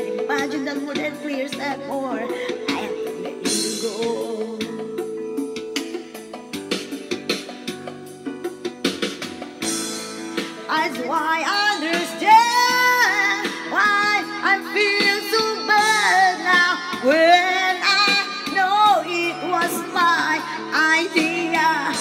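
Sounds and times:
woman singing: 0.0 - 5.3, 10.7 - 22.0
backing music track: 0.0 - 22.0.

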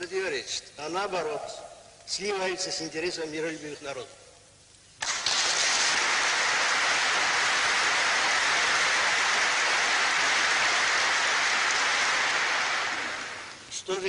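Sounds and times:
audience applauding: 5.0 - 13.8.

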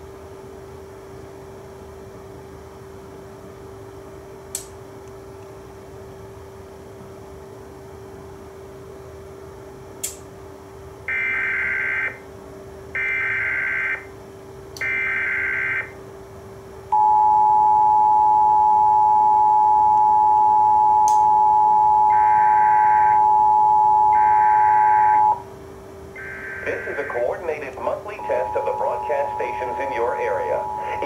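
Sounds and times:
faint steady hum: 0.0 - 31.0
two-tone attention signal: 17.0 - 25.4, 26.2 - 27.3, 28.1 - 31.0.

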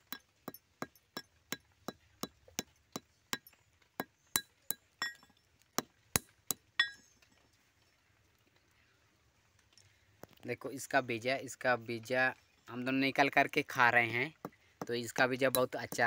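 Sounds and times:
wooden stick knocking fruit: 14.4 - 16.0.

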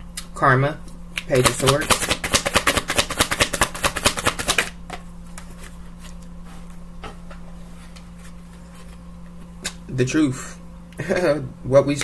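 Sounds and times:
steady low hum: 0.0 - 12.0
cards shuffling: 1.2 - 6.3.

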